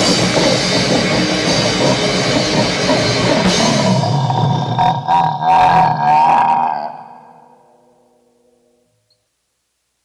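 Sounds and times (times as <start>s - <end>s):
harsh distorted growling noise: 0.0s - 8.9s.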